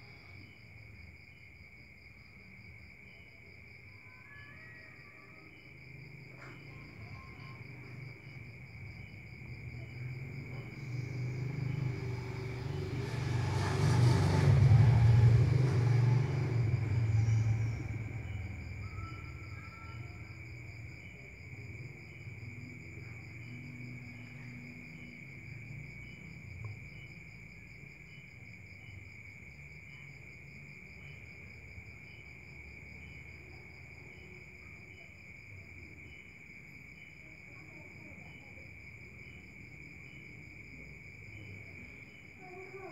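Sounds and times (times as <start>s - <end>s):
crickets chirping: 0.0s - 42.9s
low vehicle rumble: 6.2s - 34.6s.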